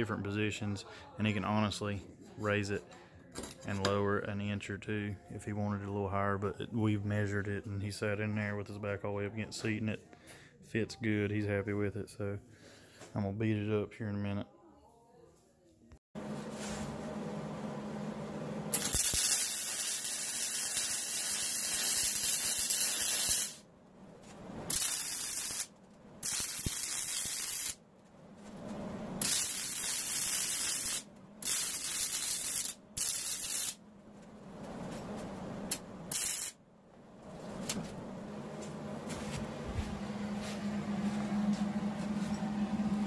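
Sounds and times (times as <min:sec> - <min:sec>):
welding arc hissing: 0:18.7 - 0:23.6, 0:24.7 - 0:27.8, 0:29.2 - 0:33.8, 0:36.1 - 0:36.6.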